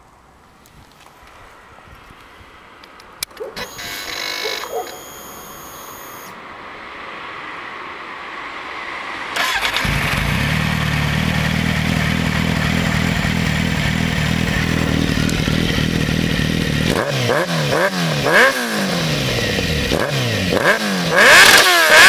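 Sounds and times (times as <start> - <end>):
thin electric whine: 3.6 - 6.4
motorcycle starter cranking: 9.4 - 10.3
motorcycle engine idling: 9.8 - 17.0.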